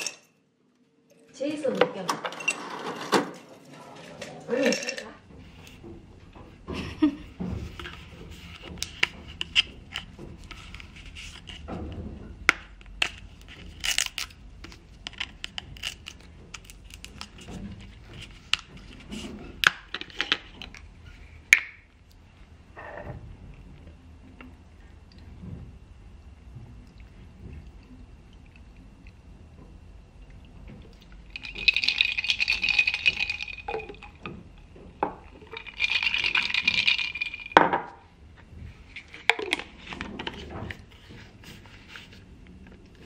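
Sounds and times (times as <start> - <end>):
low steady hum: 0.0 - 43.0
ice clinking into glass jar: 31.3 - 34.2, 35.1 - 37.8.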